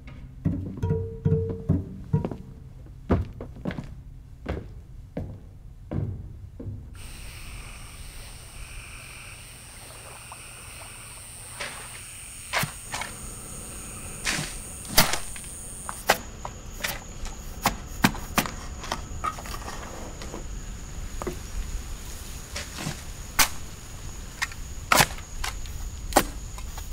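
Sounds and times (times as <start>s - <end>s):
frogs croaking: 7.0s - 26.7s
insects chirring: 7.0s - 26.9s
sharp cracks and knocks: 14.2s - 17.0s, 22.6s - 23.8s, 24.4s - 26.9s.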